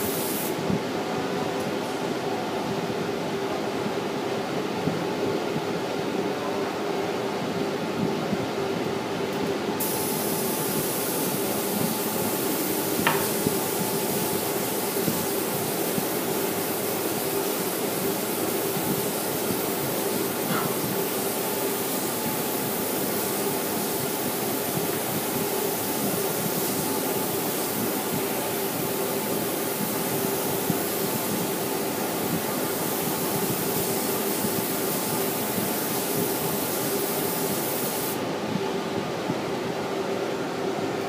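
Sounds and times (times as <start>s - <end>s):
spray gun hissing: 0.0s - 0.6s, 9.8s - 38.2s
steady hum: 0.0s - 41.0s.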